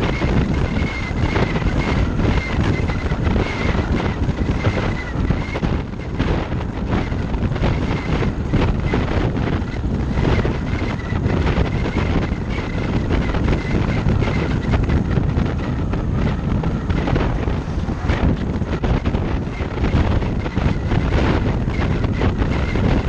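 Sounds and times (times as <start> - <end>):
thin high wind whistle: 0.0 - 23.0
wind buffeting low rumble: 0.0 - 23.0.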